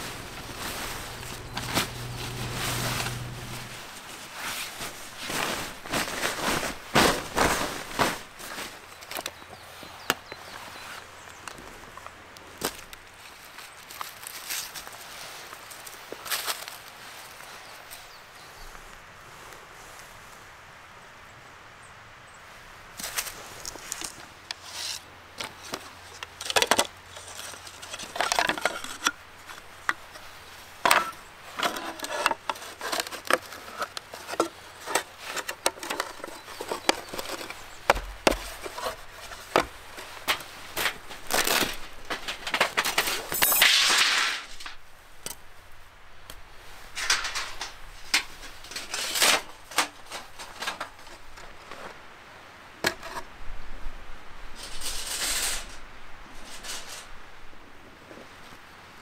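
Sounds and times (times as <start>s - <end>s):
wooden board scrape: 0.0s - 4.6s, 30.8s - 44.8s
wooden boards clacking: 30.8s - 44.8s.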